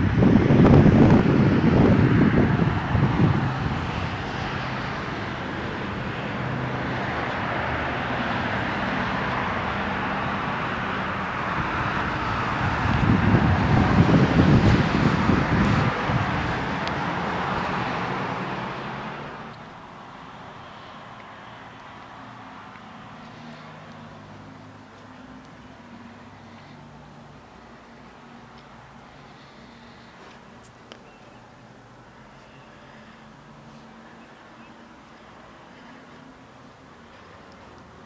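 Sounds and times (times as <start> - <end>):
wind buffeting microphone: 0.0 - 5.1, 11.3 - 18.3
steady outdoor hiss: 0.0 - 38.0.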